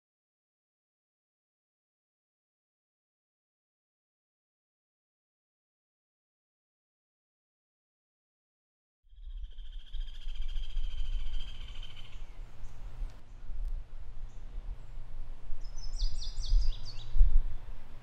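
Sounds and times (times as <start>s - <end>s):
rapid bird trill: 9.1s - 12.9s
birds singing: 9.1s - 13.4s, 14.2s - 17.8s
high bird chirps: 9.2s - 12.9s.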